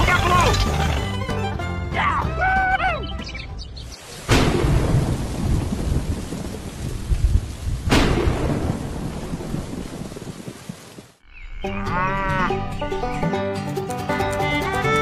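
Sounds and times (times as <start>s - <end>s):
rain falling on soil: 3.8s - 11.2s
thunderclaps: 4.2s - 11.1s.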